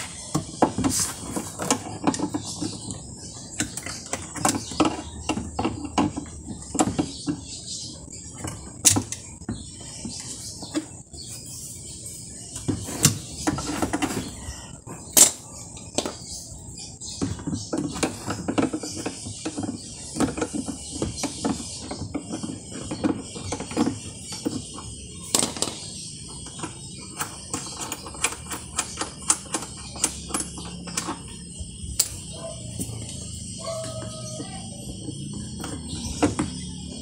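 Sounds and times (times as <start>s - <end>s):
hand tools clicking and rattling: 12.5s - 37.0s.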